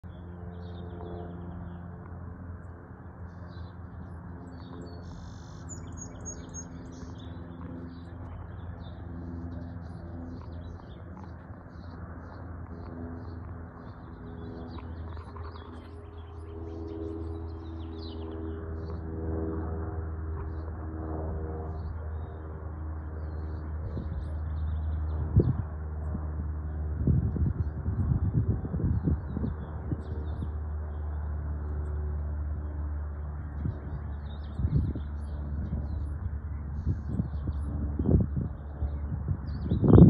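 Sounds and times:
propeller plane droning overhead: 0.0 - 40.0
birds chirping: 3.2 - 19.6.

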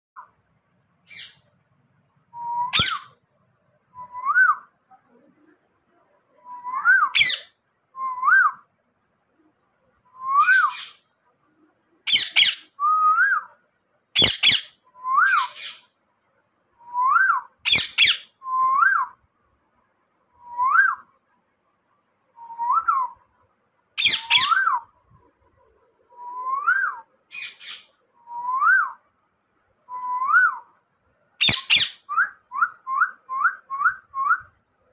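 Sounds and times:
parakeet rising whistles: 2.4 - 3.2, 6.6 - 7.5, 10.3 - 10.9, 24.0 - 24.8, 31.4 - 34.4
parakeet harsh squawks: 12.1 - 12.6, 14.2 - 14.7, 17.7 - 18.3, 24.0 - 24.6, 31.4 - 32.0.

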